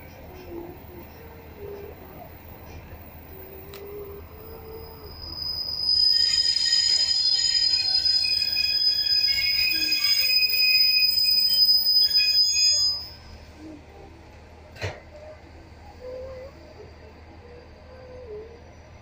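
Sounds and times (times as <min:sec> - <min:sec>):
train brakes squealing: 0:00.2 - 0:13.6.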